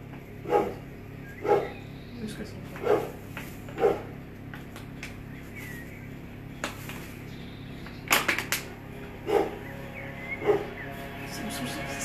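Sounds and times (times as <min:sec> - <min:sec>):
dog barking: 0:00.4 - 0:01.8, 0:02.8 - 0:03.2, 0:03.8 - 0:04.2, 0:09.2 - 0:09.6, 0:10.4 - 0:10.8.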